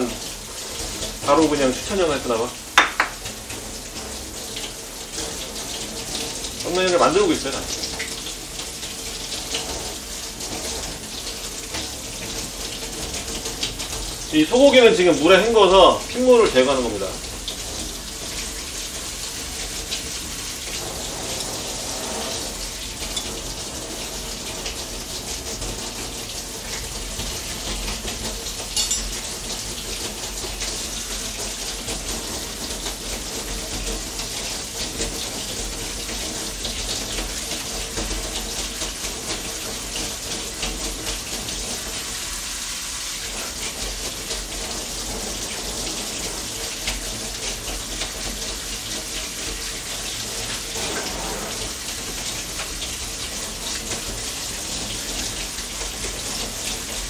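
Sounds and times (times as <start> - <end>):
tap running into sink: 0.0 - 14.2, 17.2 - 42.1, 43.1 - 57.0
brief knock: 2.8 - 3.2.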